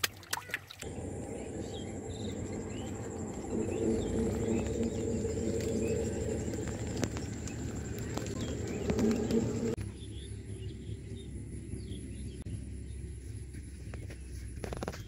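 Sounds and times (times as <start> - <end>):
water splash: 0.0 - 1.2
high-pitched insect trill: 0.8 - 9.8
bird chirps: 0.8 - 12.4
dove cooing: 0.9 - 9.8.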